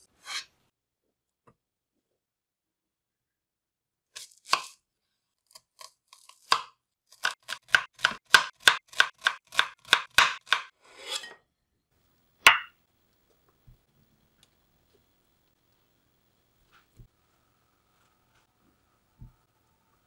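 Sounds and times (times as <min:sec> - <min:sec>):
knife scraping board: 0:00.1 - 0:00.5, 0:10.5 - 0:11.4
knife chopping on wooden board: 0:06.4 - 0:10.7.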